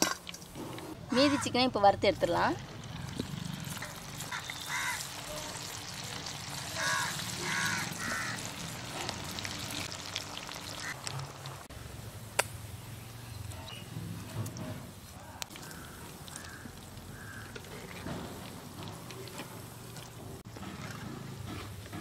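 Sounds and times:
hot oil sizzling: 0:01.8 - 0:13.1
bird calling: 0:04.3 - 0:05.1.

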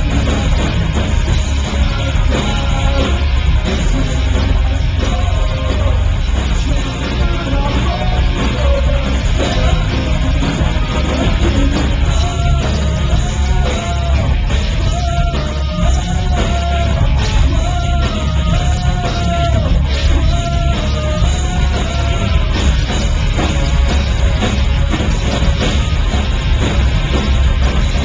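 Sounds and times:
person singing: 0:00.0 - 0:23.5
rock band playing live: 0:00.0 - 0:28.0.

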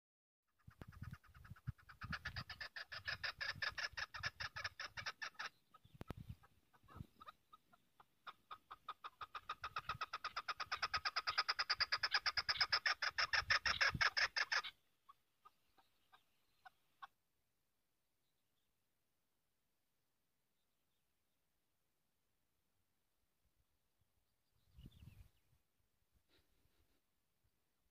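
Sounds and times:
partridge clucking calls: 0:00.5 - 0:17.2.

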